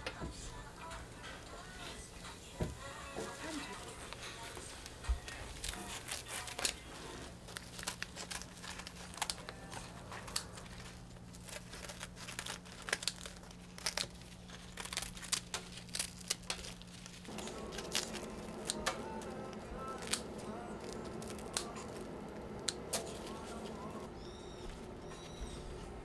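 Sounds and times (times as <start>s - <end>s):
scissors snipping crisp crust: 4.1s - 23.9s.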